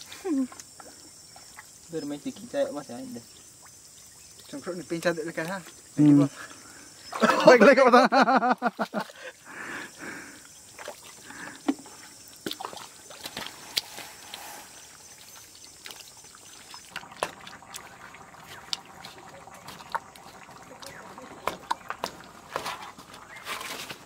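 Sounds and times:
feet squelching in wet mud: 10.7 - 14.4, 15.2 - 24.0.

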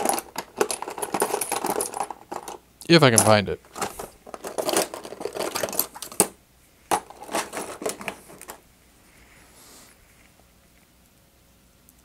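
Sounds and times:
small tools clattering: 0.0 - 8.6.

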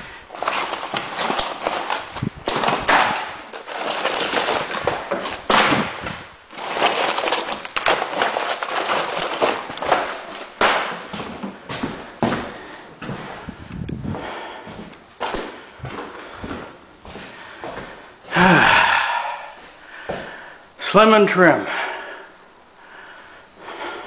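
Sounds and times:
rustling: 0.0 - 18.3
drywall pieces scraping and clattering: 0.3 - 13.5
heavy footsteps on wooden floor: 0.7 - 8.0, 9.2 - 18.4, 19.6 - 20.4.

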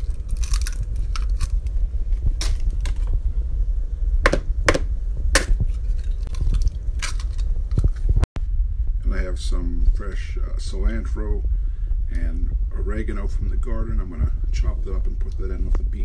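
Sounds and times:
eggs cracking on bowl: 0.0 - 3.1, 4.3 - 8.0
low rumble: 0.0 - 16.0.

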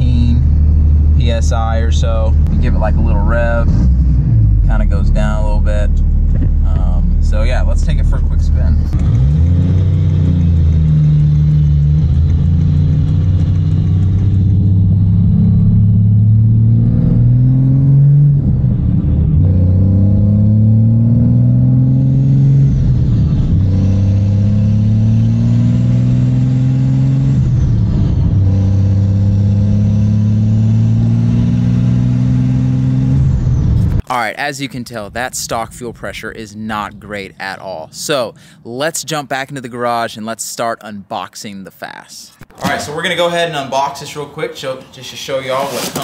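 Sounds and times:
diesel truck engine accelerating: 0.0 - 34.0.

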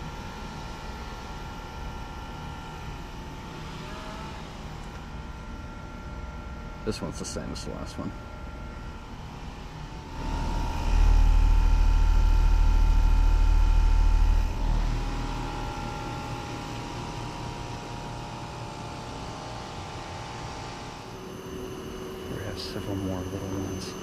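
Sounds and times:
condenser fan rushing: 0.0 - 24.0
high whine: 1.5 - 24.0
loud low rumble: 10.0 - 16.5.

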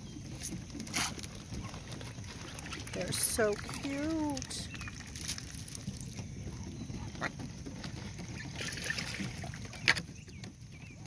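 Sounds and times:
low rumble of wind and water: 0.0 - 11.0
ducklings peeping: 5.8 - 11.0.

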